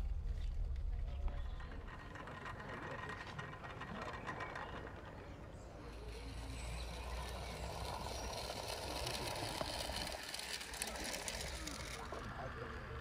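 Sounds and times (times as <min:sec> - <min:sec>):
low rumble: 0:00.0 - 0:03.4
model locomotive whirring and clicking: 0:00.0 - 0:13.0.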